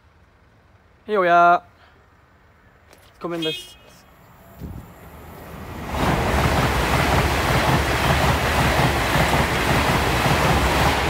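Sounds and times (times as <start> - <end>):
train passing at speed: 4.1 - 11.0.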